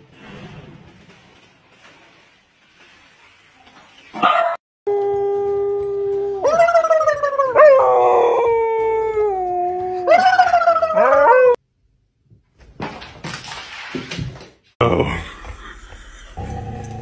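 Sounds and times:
dog howling: 0:04.9 - 0:11.6.

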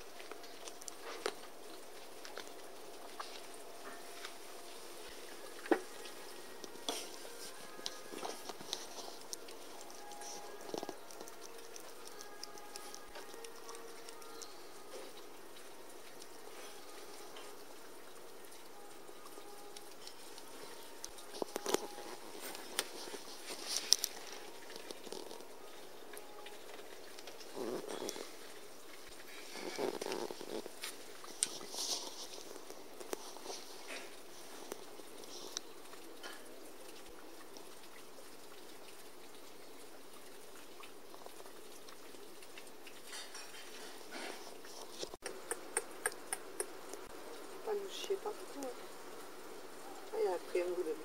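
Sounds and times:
dry leaves and twigs crackling: 0:00.0 - 0:37.2
faint steady hiss: 0:00.0 - 0:51.0
light ticks and rustles: 0:00.0 - 0:51.0.

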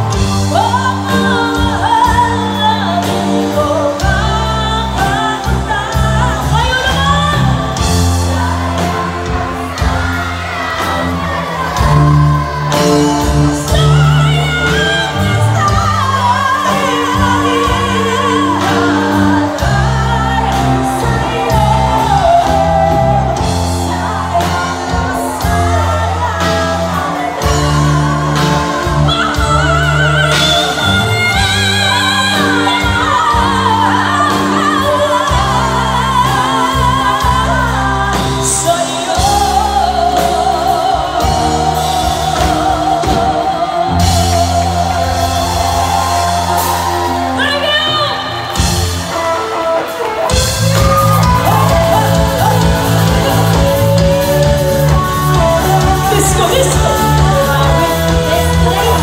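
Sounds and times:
drums: 0:00.0 - 0:59.0
electric guitar: 0:00.0 - 0:59.0
woman singing with vibrato: 0:00.0 - 0:59.0
female backing vocals: 0:50.3 - 0:59.0.

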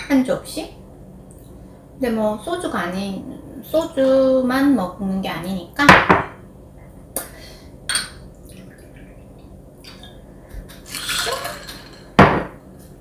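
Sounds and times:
glass bottle set down on table: 0:12.2 - 0:12.6.

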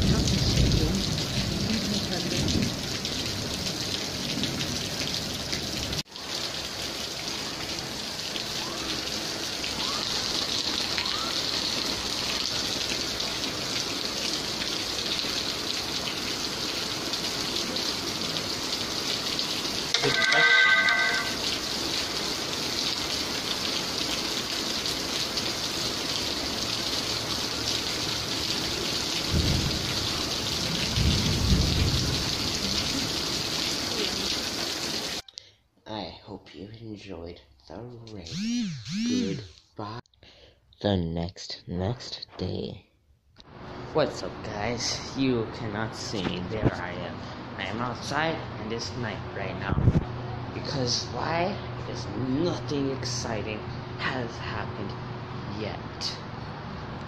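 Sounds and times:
heavy rain pouring: 0:00.0 - 0:35.2
short pitched tone: 0:20.0 - 0:21.5, 0:38.3 - 0:39.5
distant thunder rumbles: 0:29.3 - 0:33.2.

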